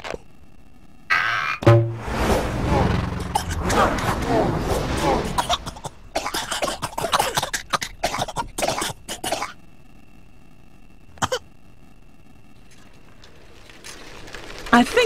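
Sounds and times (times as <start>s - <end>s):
faint steady hum: 0.0s - 15.0s
cartoon characters coughing: 5.4s - 9.6s.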